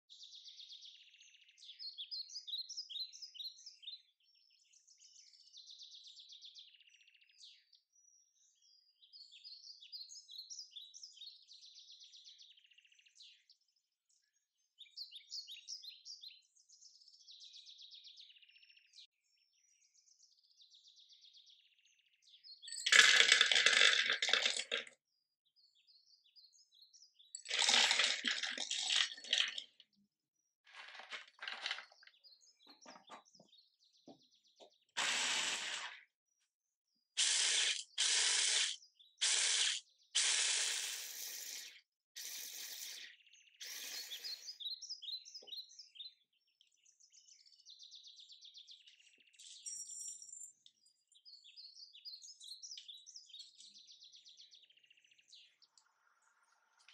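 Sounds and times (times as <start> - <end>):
small birds chirping: 0.0 - 56.9
nuts poured into plastic bowl: 22.8 - 24.9, 27.5 - 29.6, 30.7 - 31.9.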